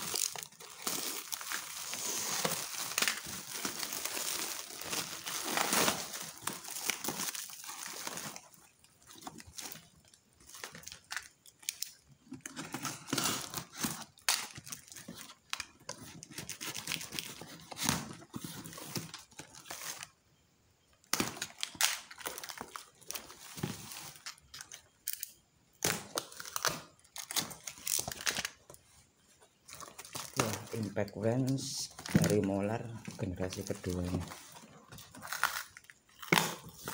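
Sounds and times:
cardboard tearing: 0:00.0 - 0:08.4
plastic wrapping crinkling: 0:00.0 - 0:20.1, 0:29.6 - 0:36.9.

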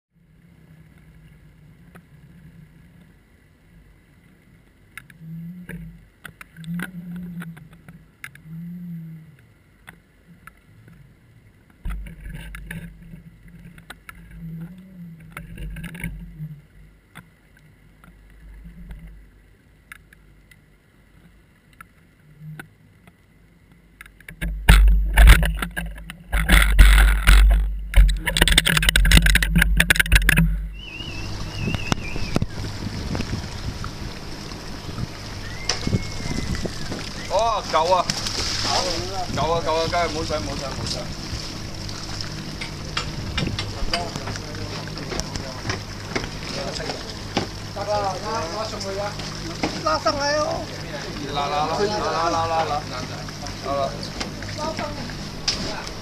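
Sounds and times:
faint steady whine: 0:00.1 - 0:56.0
low hum: 0:00.1 - 0:56.0
soft low thumps: 0:24.4 - 0:34.0.

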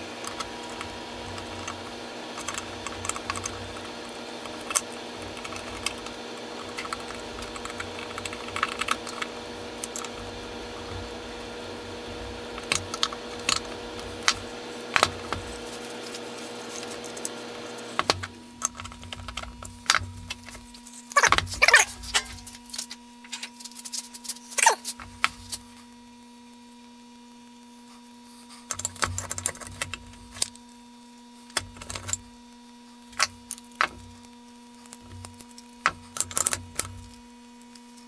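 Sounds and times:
steady hum: 0:00.0 - 0:38.0
screwdriver tapping metal parts: 0:12.5 - 0:15.6.

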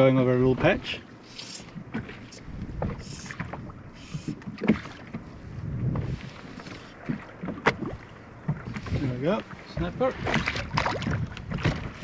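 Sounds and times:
water slapping against boat hull: 0:00.0 - 0:12.0
hissing water swishes: 0:01.2 - 0:09.4.

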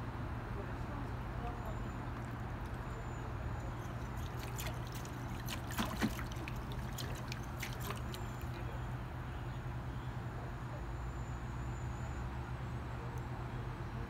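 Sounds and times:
water trickling and lapping: 0:01.0 - 0:09.2
small water splashes: 0:03.5 - 0:09.0.

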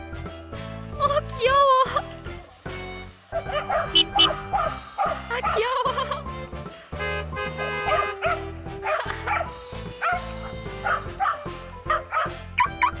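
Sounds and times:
background music: 0:00.0 - 0:13.0
dogs yipping and barking: 0:03.3 - 0:06.3, 0:07.7 - 0:13.0.

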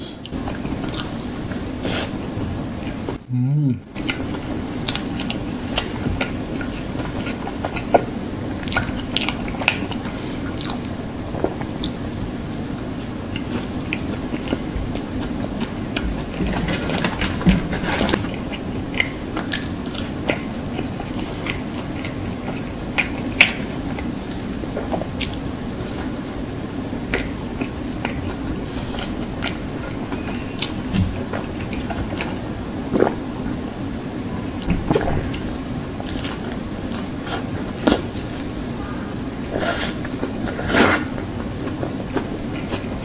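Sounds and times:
steady low hum: 0:00.0 - 0:43.0
chewing and biting food: 0:00.3 - 0:02.2, 0:04.0 - 0:12.1, 0:13.3 - 0:26.1, 0:27.1 - 0:33.3.

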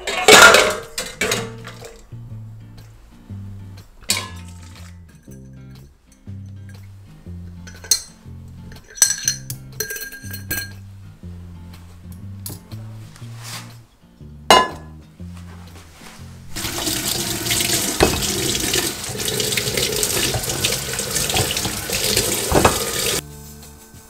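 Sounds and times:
glass jar clink: 0:04.1 - 0:06.8, 0:07.6 - 0:10.8, 0:14.5 - 0:14.9, 0:18.0 - 0:23.2
lemons knocking against bowl: 0:16.6 - 0:23.2
tap water running into metal bowl: 0:16.6 - 0:23.2.

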